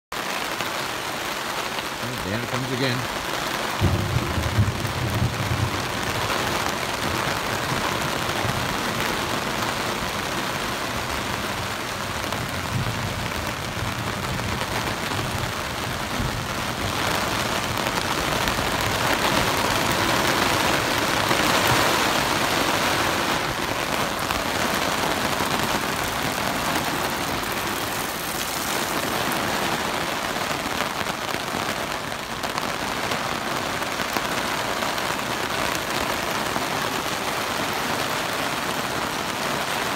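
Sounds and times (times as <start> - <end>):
steady rain falling: 0.1 - 39.9
low thunder rumbles: 3.8 - 30.3.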